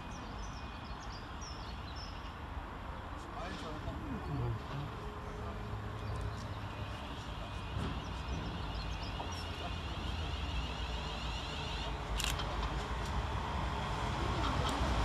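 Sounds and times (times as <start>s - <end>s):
electric train rumble: 6.6s - 15.0s.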